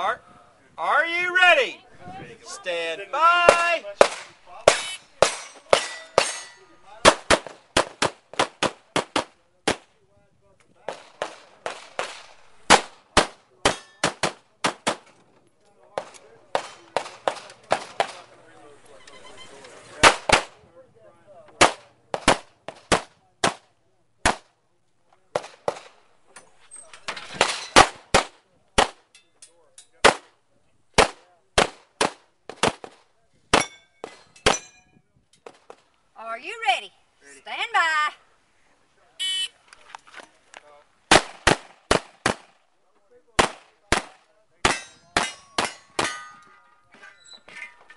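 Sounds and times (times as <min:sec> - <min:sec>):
pistol shots: 0:10.9 - 0:15.0, 0:41.1 - 0:42.6, 0:43.4 - 0:46.3.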